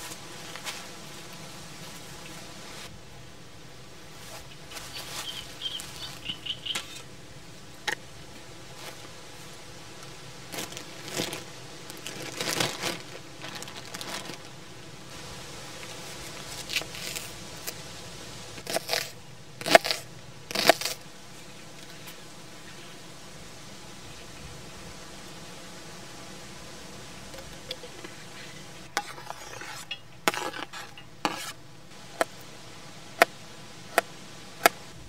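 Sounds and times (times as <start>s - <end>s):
plastic bag crinkling: 10.5s - 14.6s.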